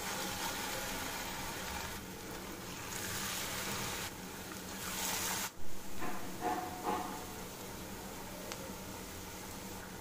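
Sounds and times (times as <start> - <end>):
hot oil sizzling in a pan: 0.0 - 4.2, 6.7 - 10.0.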